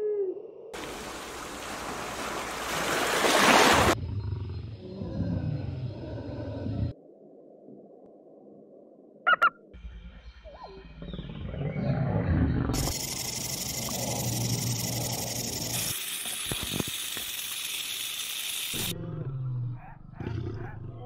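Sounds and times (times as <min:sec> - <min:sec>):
eagle calls: 0:09.3 - 0:09.6
rattlesnake rattling: 0:12.8 - 0:18.9.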